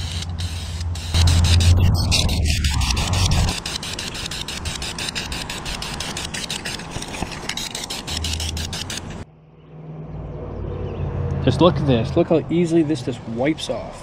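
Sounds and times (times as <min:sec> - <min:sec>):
aerosol spray can hissing: 0:00.0 - 0:09.2.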